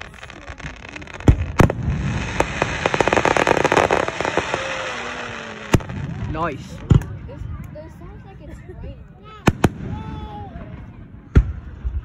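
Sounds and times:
firework shells bursting: 0:00.0 - 0:06.3
fireworks crackling: 0:00.0 - 0:08.2, 0:09.3 - 0:11.6.

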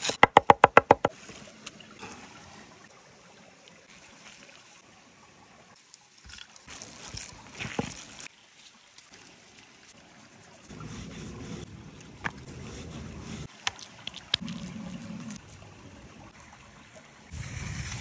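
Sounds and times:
creek water trickling: 0:01.0 - 0:18.0.

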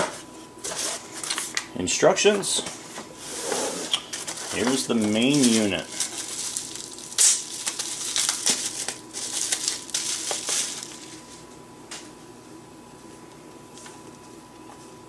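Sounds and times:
bubble wrap crinkling: 0:04.1 - 0:11.5.

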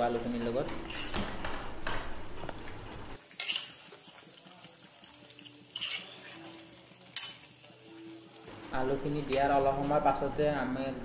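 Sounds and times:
metal spatula scraping a pan: 0:03.2 - 0:04.4, 0:05.0 - 0:10.0.

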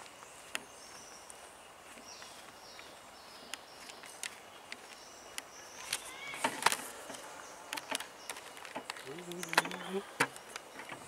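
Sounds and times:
sharp clicks and knocks: 0:03.5 - 0:11.0.

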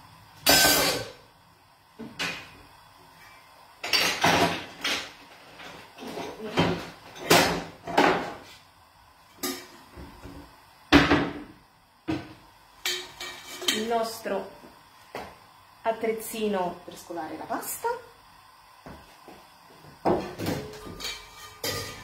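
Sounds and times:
metal cookware clanking: 0:09.4 - 0:09.8, 0:12.8 - 0:14.0, 0:20.3 - 0:22.0.

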